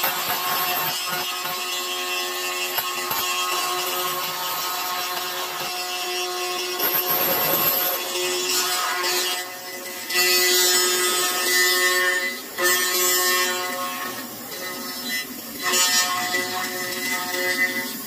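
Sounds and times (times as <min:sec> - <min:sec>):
cutter milling aluminium: 0:00.0 - 0:18.0
milling machine whining: 0:00.1 - 0:10.1.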